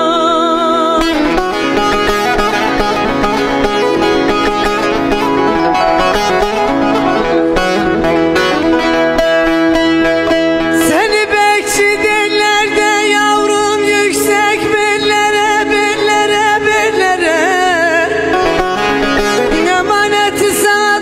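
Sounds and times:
plucked string instrument: 1.0s - 21.0s
backing accompaniment: 3.0s - 9.7s.

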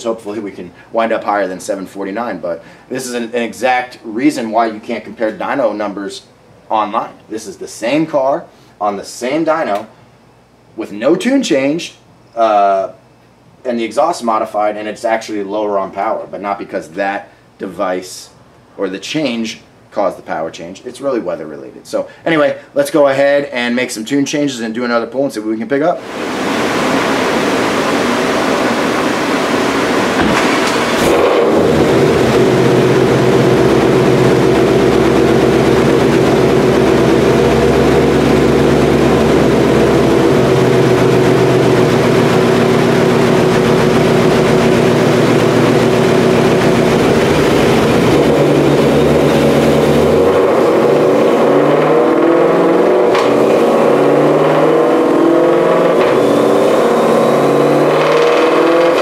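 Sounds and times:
car engine revving on dyno: 26.0s - 59.0s.

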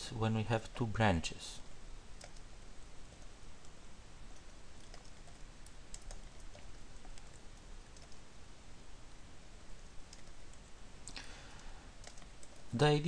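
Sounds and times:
steady low hiss: 0.0s - 13.0s
keyboard typing: 2.2s - 2.5s, 4.3s - 8.2s, 10.1s - 10.7s, 12.0s - 12.7s.

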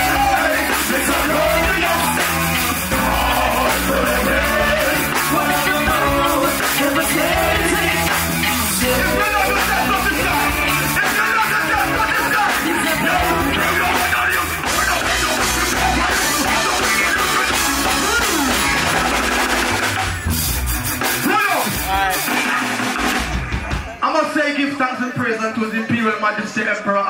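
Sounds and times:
man singing into a microphone: 0.0s - 8.1s, 8.7s - 18.6s
reggae band playing: 0.0s - 26.9s.

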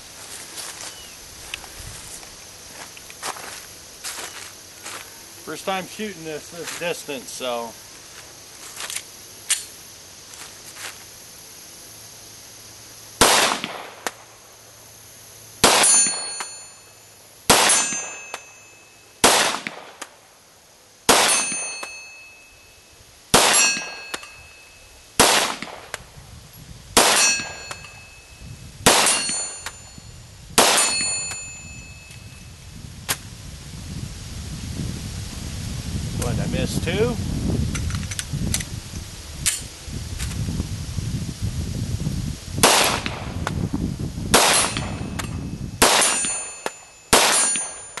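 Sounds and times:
pistol shots: 13.2s - 14.1s, 15.6s - 16.4s, 17.5s - 18.2s, 19.2s - 20.0s, 21.1s - 21.9s, 23.3s - 24.3s, 25.2s - 25.9s, 27.0s - 27.9s, 28.9s - 29.5s, 30.6s - 31.1s, 42.6s - 43.2s, 44.3s - 45.0s, 45.8s - 47.8s
steel plate clanging: 21.2s - 22.5s, 27.1s - 28.2s, 29.0s - 29.9s, 30.7s - 32.2s, 44.5s - 48.0s.

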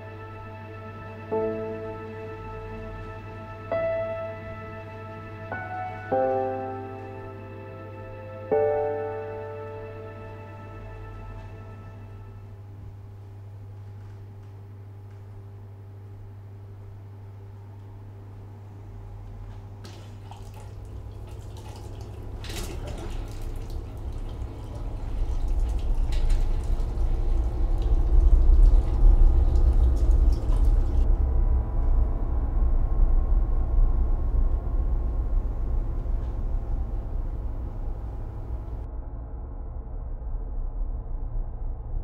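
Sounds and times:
deep low rumble: 24.1s - 42.0s.

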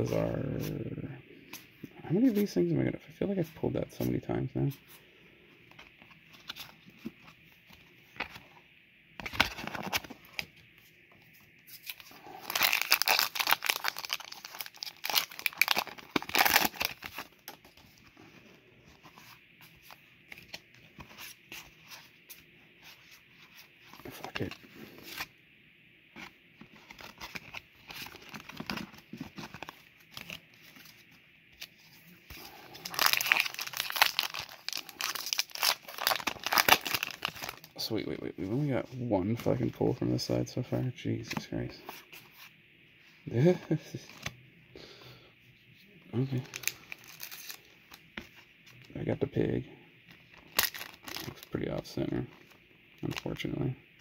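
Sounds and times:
foil wrapper crinkling and tearing: 11.8s - 17.7s, 32.4s - 37.7s, 46.4s - 47.7s, 50.4s - 51.5s.

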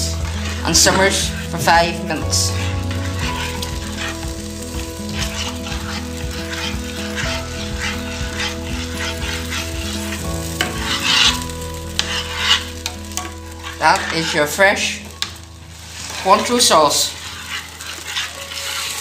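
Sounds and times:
cooking sizzle: 0.0s - 19.0s
metal spoon scraping saucepan: 0.1s - 4.3s, 5.0s - 15.2s, 15.8s - 19.0s.

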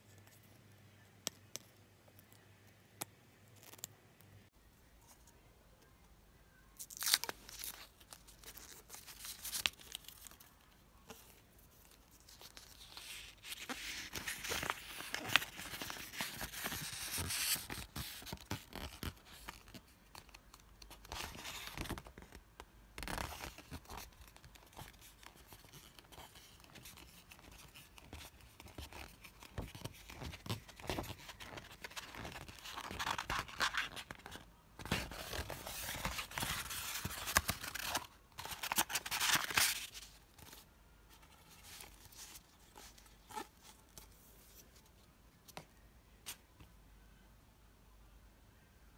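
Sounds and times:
paper rustling and crinkling: 7.0s - 22.4s, 23.0s - 44.8s.

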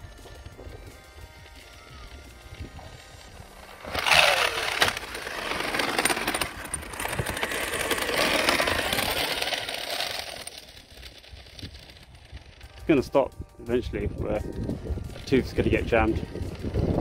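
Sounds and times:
electric motor whining: 0.0s - 12.8s
gears rattling and clicking: 1.4s - 17.0s.

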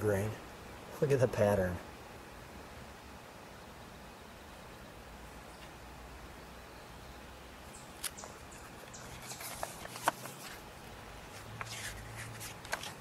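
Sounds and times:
paper pages rustling: 8.0s - 13.0s.

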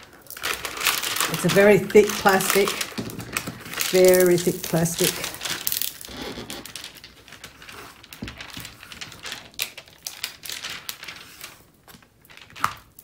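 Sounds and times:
plastic film peeling off adhesive: 0.0s - 13.0s.

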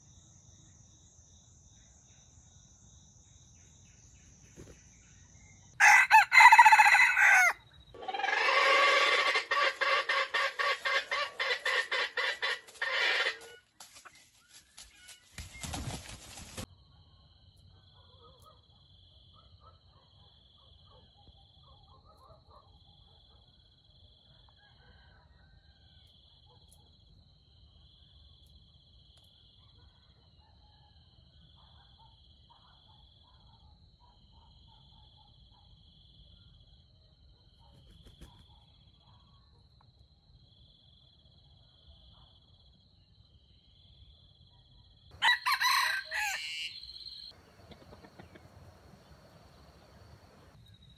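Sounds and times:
rooster crowing: 5.8s - 13.6s, 24.5s - 25.9s, 45.2s - 50.6s
faint bird calls: 45.2s - 50.6s.

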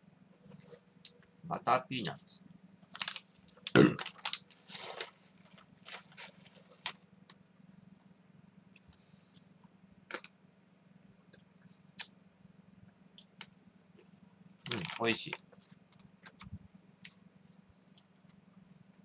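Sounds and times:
steady low hum: 0.0s - 19.0s
peanuts crunching: 2.9s - 6.9s, 14.7s - 15.7s
plastic snack bag rustling: 2.9s - 7.0s, 14.7s - 15.7s.

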